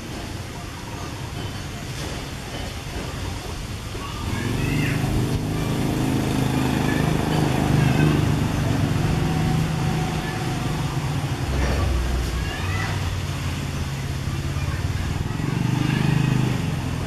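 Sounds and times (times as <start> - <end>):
vehicle engine hum: 4.3 - 17.0.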